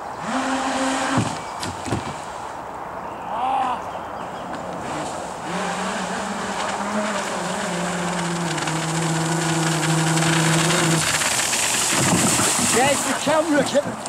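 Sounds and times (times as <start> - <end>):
electric motor hum: 0.0 - 1.4, 4.8 - 13.5
water jet hissing: 5.4 - 13.7.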